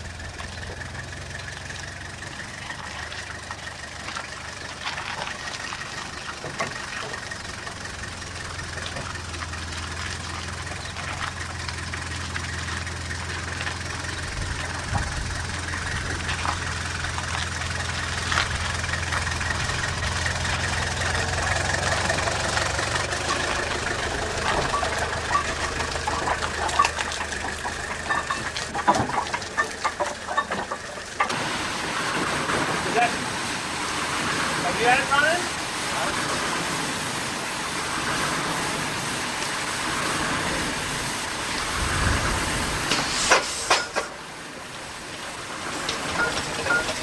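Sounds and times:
engine humming: 0.0s - 47.0s
sharp metallic knocks and clanks: 23.2s - 31.4s, 42.9s - 44.2s, 46.1s - 47.0s
faint hiss: 31.6s - 46.8s.

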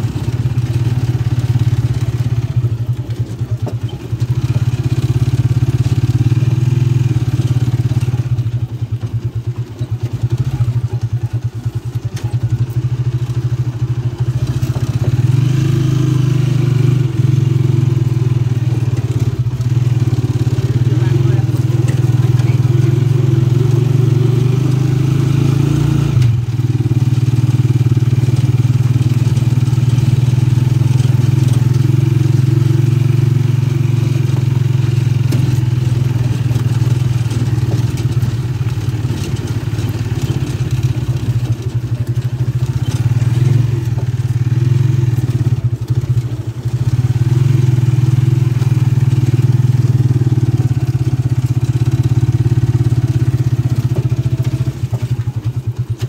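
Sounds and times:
small vehicle engine running: 0.0s - 56.0s.

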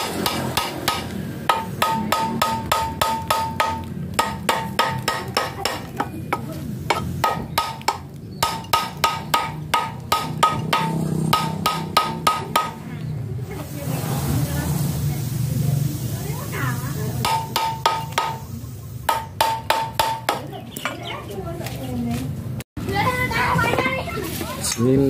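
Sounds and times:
hammer striking metal: 0.0s - 12.8s, 17.2s - 18.4s, 19.1s - 20.5s.

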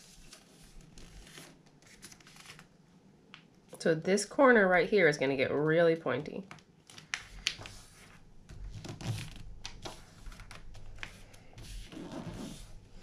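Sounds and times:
paper being folded: 0.0s - 2.7s, 6.5s - 13.0s.

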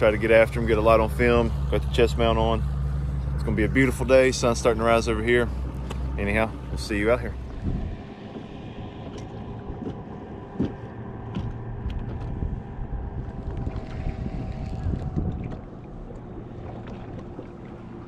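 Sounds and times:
water lapping against boat hull: 0.0s - 18.0s
wind on microphone: 6.9s - 17.4s.

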